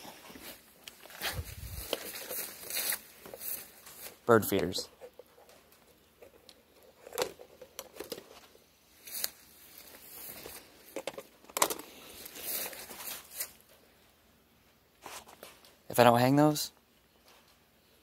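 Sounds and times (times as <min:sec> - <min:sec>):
rustling: 0:00.0 - 0:13.9.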